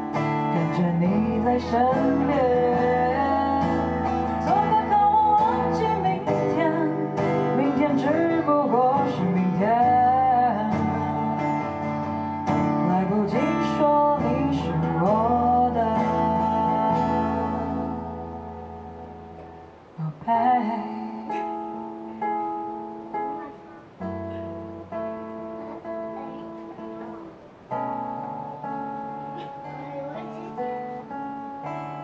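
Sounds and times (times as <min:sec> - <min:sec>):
acoustic guitar playing: 0:00.0 - 0:32.0
woman singing wordless melody: 0:00.4 - 0:11.8, 0:12.6 - 0:18.9, 0:19.8 - 0:22.9.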